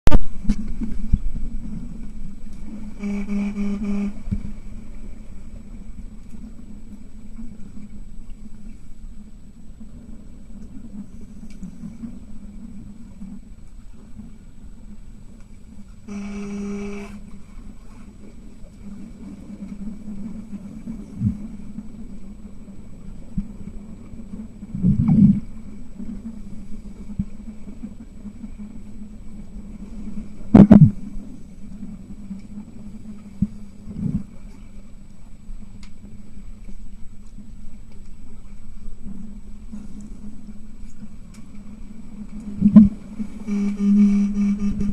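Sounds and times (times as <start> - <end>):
low underwater hum: 0.1 - 44.9
buzzing tone: 2.7 - 4.5, 16.1 - 17.3, 42.6 - 44.9.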